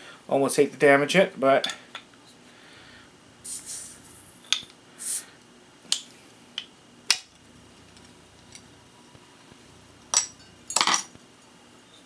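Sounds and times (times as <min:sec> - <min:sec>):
bottle seal hissing: 0:03.4 - 0:05.3.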